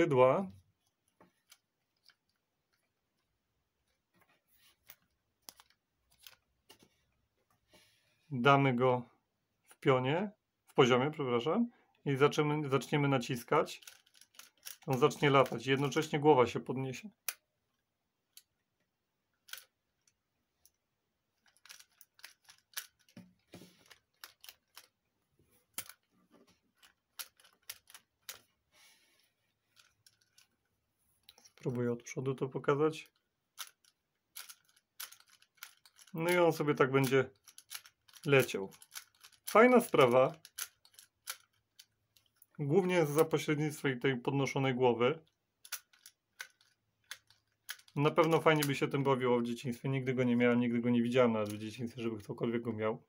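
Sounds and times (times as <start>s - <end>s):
toy mechanism plastic clicks: 1.4s - 2.9s, 4.9s - 6.5s, 12.7s - 16.2s, 19.4s - 20.8s, 21.4s - 25.0s, 25.7s - 26.1s, 26.7s - 28.5s, 29.7s - 30.6s, 32.4s - 43.5s, 45.2s - 49.2s, 51.3s - 52.4s
faint plastic clicks: 45.2s - 49.0s.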